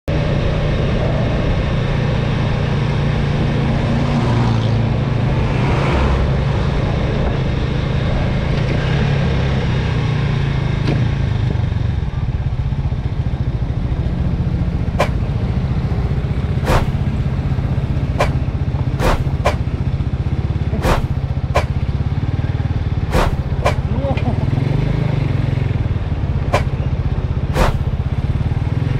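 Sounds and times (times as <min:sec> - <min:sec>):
motorcycle engine running: 0:06.3 - 0:28.9.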